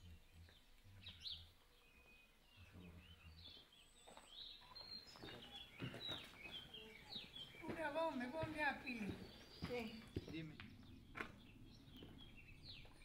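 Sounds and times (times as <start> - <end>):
bird chirps: 0.0 - 13.0.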